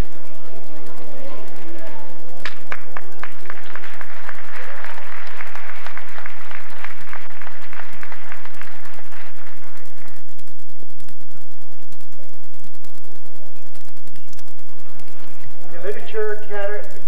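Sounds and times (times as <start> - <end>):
audience applauding: 2.4 - 10.3.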